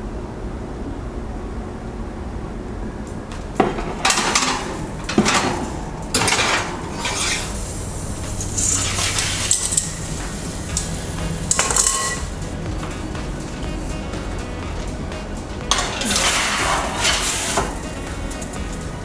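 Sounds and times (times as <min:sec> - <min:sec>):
glass dish scraping on oven rack: 0:03.6 - 0:07.7, 0:08.3 - 0:10.1, 0:11.4 - 0:12.4, 0:15.6 - 0:17.8.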